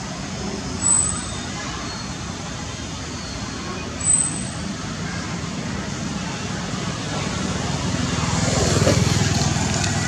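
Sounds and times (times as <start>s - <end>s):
road noise: 0.0s - 10.0s.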